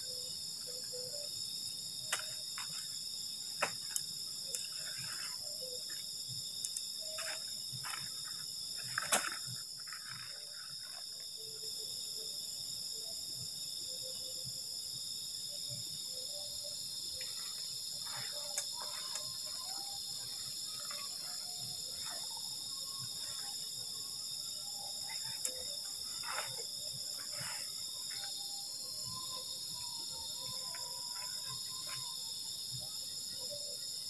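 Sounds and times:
crickets and insects chirring: 0.0s - 34.0s
tent poles clicking: 6.6s - 11.0s
tent nylon rustling: 25.0s - 28.6s.

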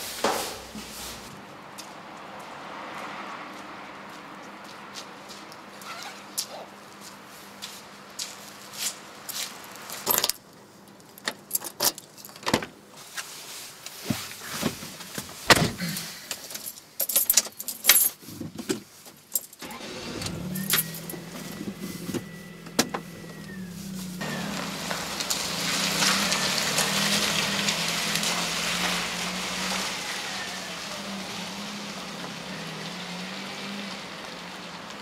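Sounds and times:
keys jangling: 11.3s - 12.4s, 16.4s - 18.2s, 19.3s - 19.6s.

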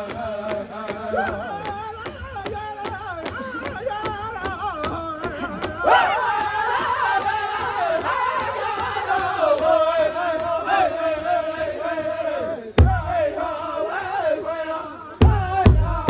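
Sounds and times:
group singing in high voices: 0.0s - 16.0s
large drum beating: 15.2s - 16.0s.

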